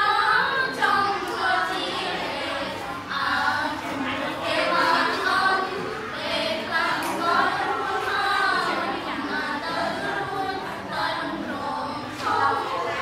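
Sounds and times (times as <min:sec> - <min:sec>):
group of girls singing in unison: 0:00.0 - 0:13.0.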